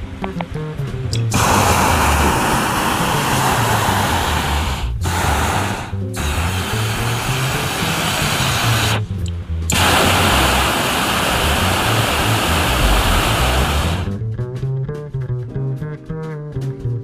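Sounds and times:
background music with bass: 0.0 - 17.0
propane burner hissing: 1.2 - 9.1, 9.7 - 14.2
plucked guitar music: 14.0 - 17.0.

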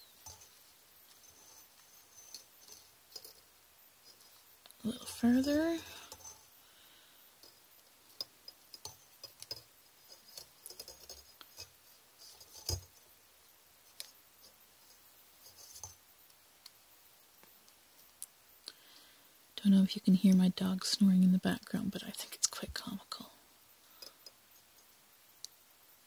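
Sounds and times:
wire clicking while bent by hand: 7.4 - 11.8.

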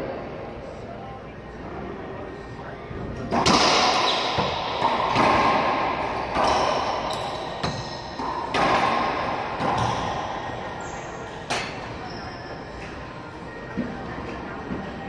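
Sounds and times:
racquetball smacks echoing: 3.3 - 10.6.

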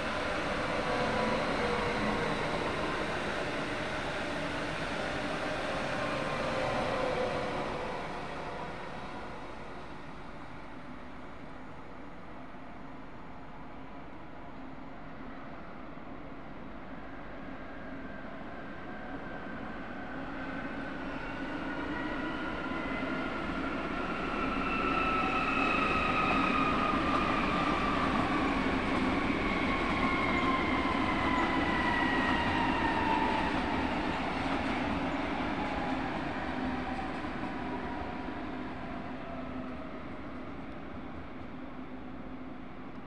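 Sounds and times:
train wheels rumbling on rails: 24.0 - 41.6.

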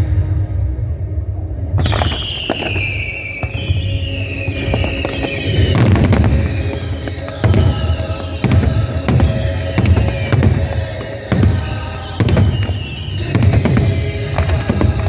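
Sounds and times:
low rumble: 0.0 - 3.1
fireworks crackling burst: 1.8 - 15.0
fireworks pops: 1.8 - 15.0
fireworks whistles: 1.8 - 15.0.

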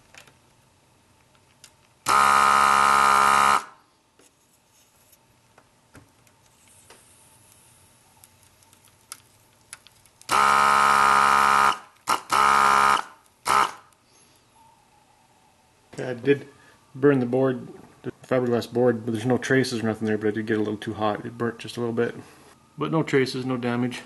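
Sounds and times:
vacuum pump buzzing: 2.0 - 3.8, 10.3 - 13.9.

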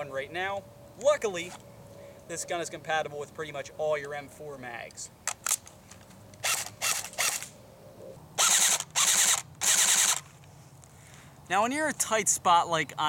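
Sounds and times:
airsoft rifle firing bursts: 8.4 - 10.2.

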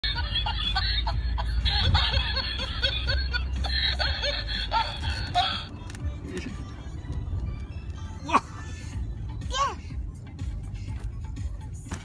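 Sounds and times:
rapid high-pitched laughing: 0.0 - 5.7.

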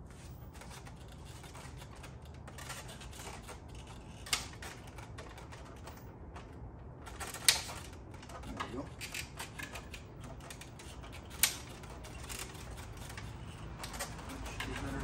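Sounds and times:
small parts clicking and tapping: 0.5 - 15.0.

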